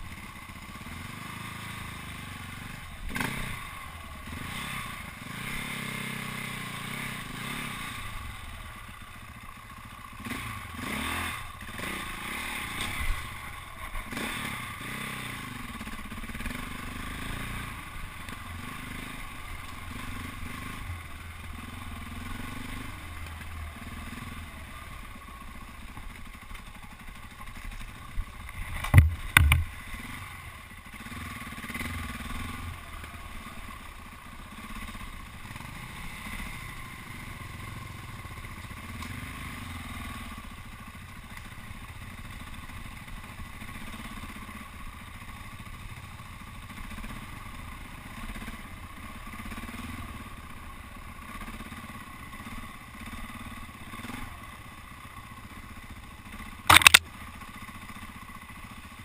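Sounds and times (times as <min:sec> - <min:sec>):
motorcycle engine running: 0:00.0 - 0:59.0
sharp knocks: 0:28.8 - 0:29.7.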